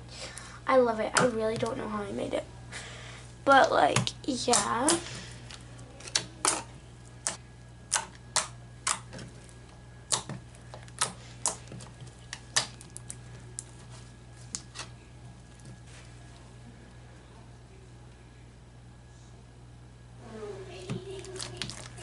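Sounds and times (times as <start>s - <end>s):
slime squished by hand: 7.2s - 16.4s.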